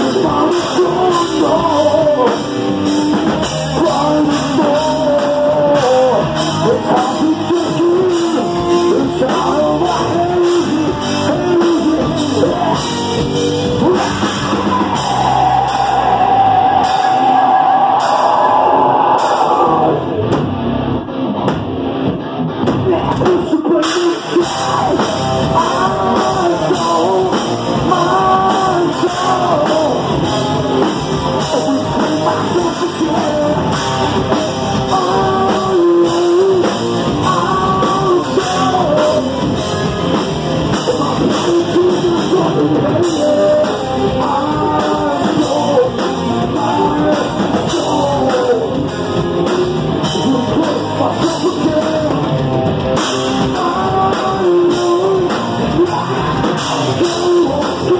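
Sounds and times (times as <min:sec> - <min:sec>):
man singing into microphone: 0:00.0 - 0:17.8, 0:22.8 - 0:52.4, 0:53.0 - 0:57.9
drum kit: 0:00.0 - 0:57.9
electric guitar: 0:00.0 - 0:57.9.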